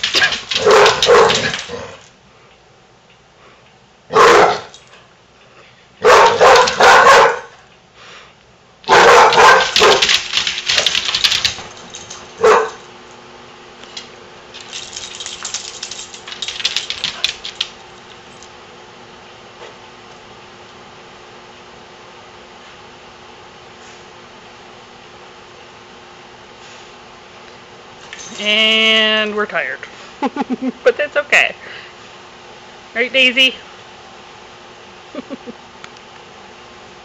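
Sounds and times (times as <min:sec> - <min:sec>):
dogs barking: 0:00.0 - 0:02.0, 0:04.1 - 0:04.7, 0:06.0 - 0:07.6, 0:08.9 - 0:11.0, 0:12.4 - 0:12.8.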